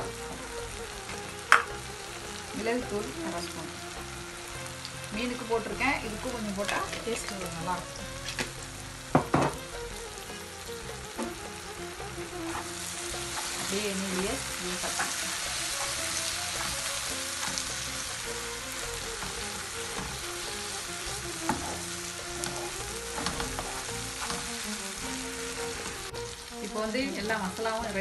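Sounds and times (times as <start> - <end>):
utensil scraping and tapping pan: 0.0 - 1.8, 8.1 - 8.6, 11.0 - 26.0
masala sizzling in frying pan: 0.0 - 28.0.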